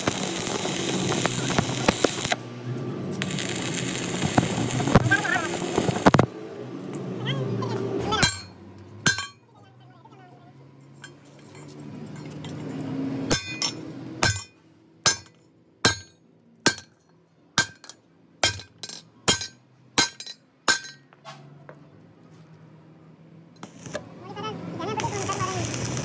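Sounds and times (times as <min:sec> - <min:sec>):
hammer striking metal: 0:08.2 - 0:09.4, 0:13.3 - 0:21.2.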